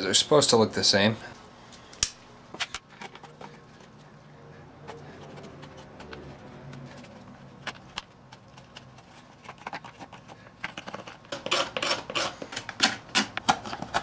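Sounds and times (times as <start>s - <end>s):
knife scraping hard plastic: 4.8s - 14.0s.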